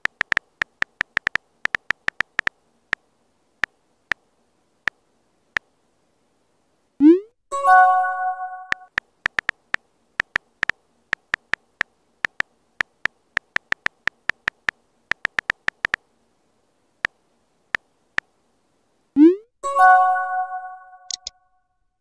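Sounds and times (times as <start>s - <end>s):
phone keyboard taps: 0.0s - 2.5s, 8.7s - 16.0s.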